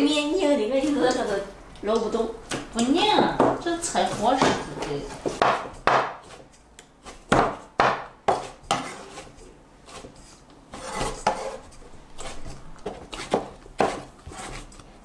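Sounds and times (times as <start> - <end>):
cleaver chopping on wooden board: 3.4 - 6.4, 7.0 - 8.9, 12.8 - 14.6
blade scraping across board: 8.3 - 14.8.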